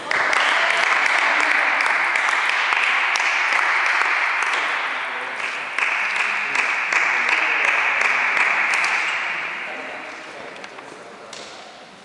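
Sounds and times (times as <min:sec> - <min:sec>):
small crowd applauding: 0:00.0 - 0:09.4.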